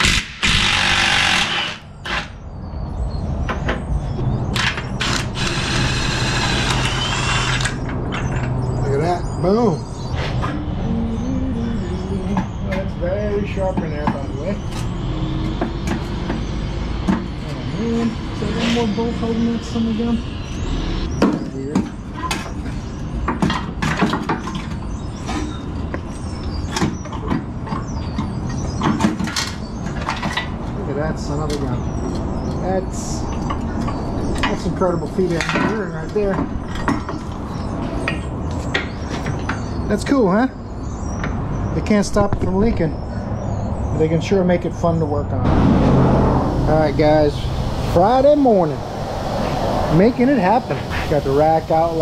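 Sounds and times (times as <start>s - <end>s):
impact wrench hammering: 0.0s - 1.8s
steady low rumble: 45.3s - 52.0s.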